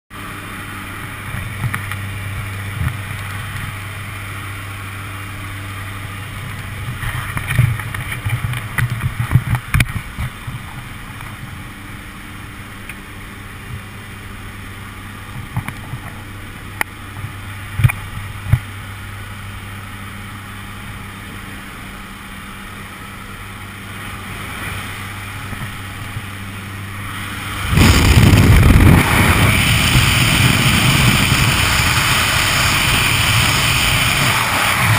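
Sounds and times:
plane engines droning: 0.1s - 34.9s
rush of wind: 24.0s - 34.9s.

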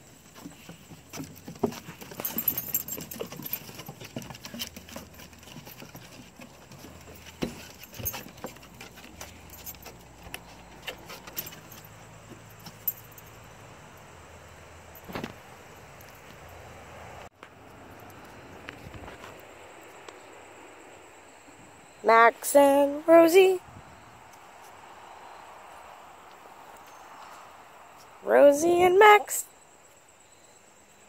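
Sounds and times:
paws clicking on wooden boards: 0.2s - 13.0s
metallic jingling: 0.2s - 13.6s.

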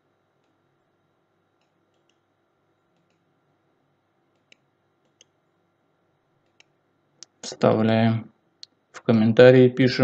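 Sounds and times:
computer mouse clicks: 1.6s - 2.3s, 2.9s - 3.3s, 4.3s - 5.4s, 6.4s - 7.4s.

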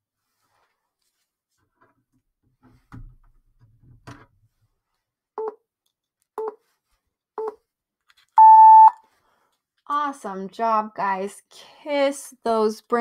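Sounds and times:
timer beeps: 8.4s - 9.0s.

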